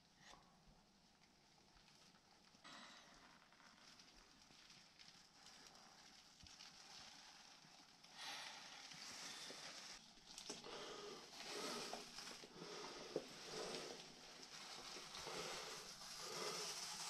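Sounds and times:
person breathing close: 10.6s - 17.0s.

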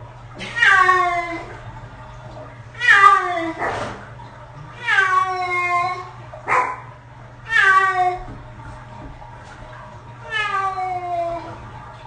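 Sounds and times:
cat yowling: 0.4s - 1.5s, 2.8s - 3.6s, 4.8s - 6.8s, 7.5s - 8.3s, 10.3s - 11.6s.

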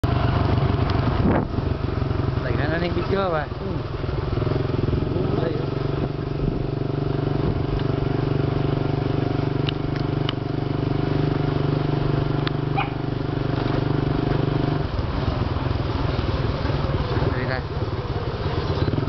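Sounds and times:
motorcycle engine cruising: 0.0s - 19.0s.

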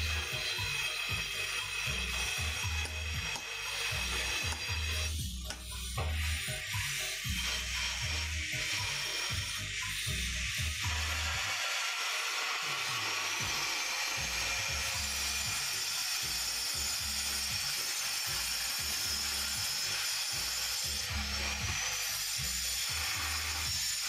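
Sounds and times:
background music with bassline: 0.0s - 11.4s
angle grinder grinding stone: 0.0s - 24.0s.

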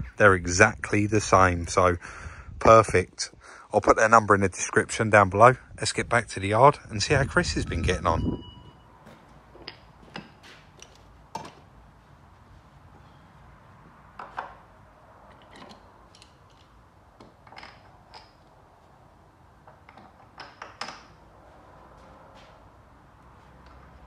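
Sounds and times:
tools and parts clicking and tapping: 9.0s - 11.7s, 14.1s - 18.6s, 19.6s - 21.2s, 23.6s - 24.0s.

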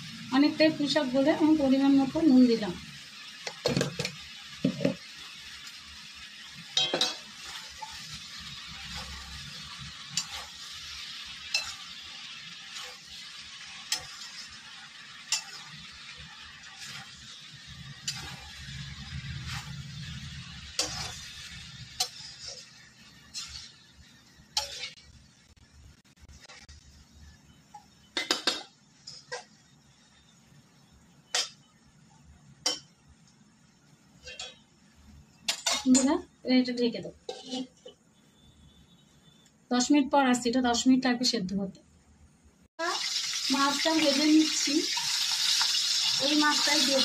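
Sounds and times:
food sizzling in a pan: 0.0s - 41.5s, 42.7s - 47.0s
spatula scraping and clinking pan: 6.6s - 23.8s, 24.5s - 25.1s, 34.2s - 34.7s, 37.1s - 38.0s.

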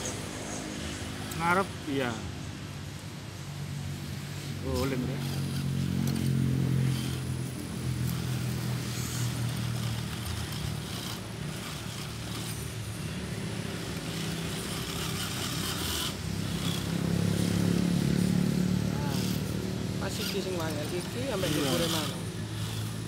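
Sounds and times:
electric motor whining: 4.6s - 23.0s.

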